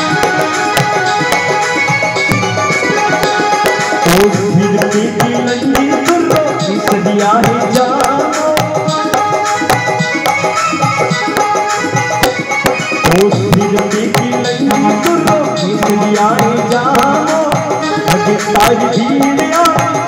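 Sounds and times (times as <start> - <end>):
sustained melody: 0.0 - 7.5
hand drum beating: 0.0 - 20.0.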